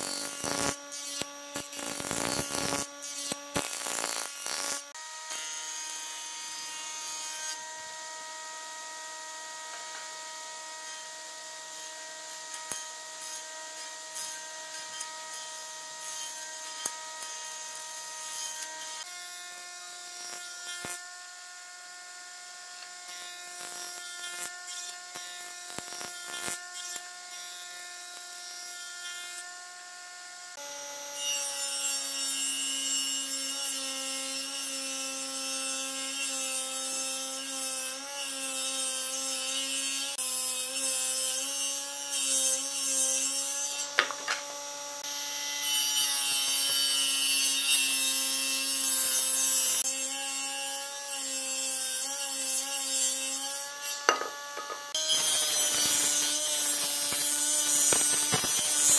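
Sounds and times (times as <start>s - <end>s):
table saw cutting log: 0.0s - 8.3s, 30.5s - 58.9s.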